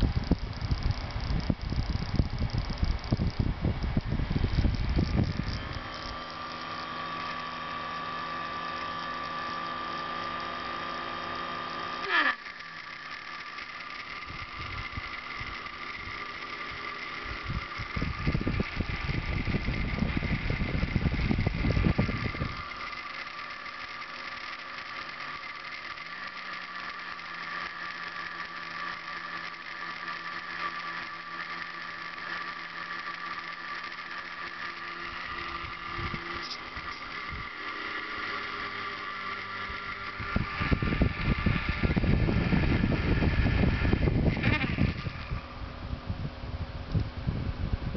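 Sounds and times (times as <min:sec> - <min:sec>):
low rumbling: 0:00.0 - 0:06.2, 0:17.2 - 0:22.8, 0:39.6 - 0:47.9
small motor whine: 0:00.0 - 0:47.9.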